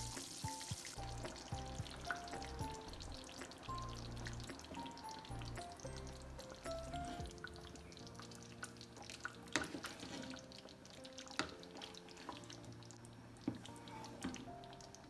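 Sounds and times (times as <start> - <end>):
sauce plopping in a pan: 0.0 - 13.1
faint background music: 0.0 - 15.0.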